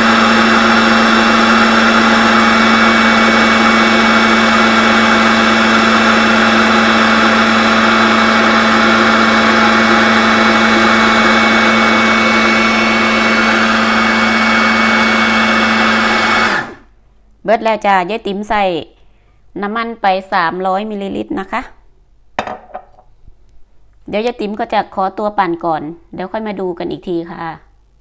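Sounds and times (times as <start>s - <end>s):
food processor motor humming: 0.0s - 16.9s.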